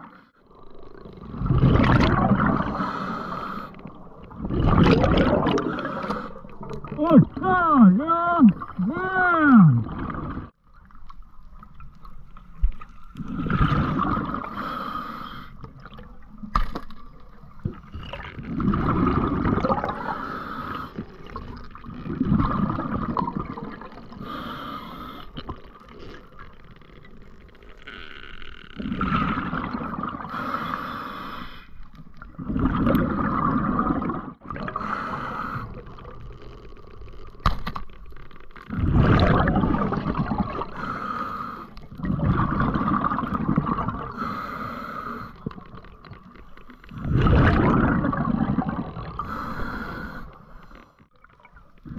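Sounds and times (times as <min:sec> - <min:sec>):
bubbles gurgling underwater: 0:00.6 - 0:02.9, 0:03.8 - 0:07.4, 0:17.6 - 0:20.2, 0:21.2 - 0:24.3, 0:32.2 - 0:34.8, 0:38.7 - 0:40.8, 0:41.9 - 0:44.2, 0:46.9 - 0:49.3
regulator breathing: 0:40.8 - 0:41.8, 0:44.1 - 0:45.5, 0:49.2 - 0:51.0.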